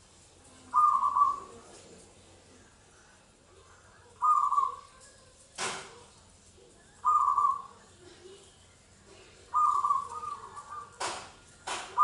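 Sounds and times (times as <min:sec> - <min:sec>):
dove cooing: 0:00.6 - 0:01.7, 0:04.1 - 0:05.0, 0:07.0 - 0:07.9, 0:09.4 - 0:11.1.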